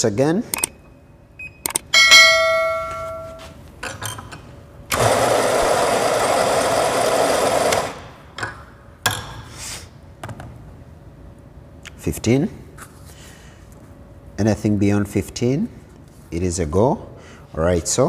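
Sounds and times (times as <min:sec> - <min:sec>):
ringing metal clang: 0:01.9 - 0:03.6
espresso grinder grinding coffee: 0:05.0 - 0:08.0.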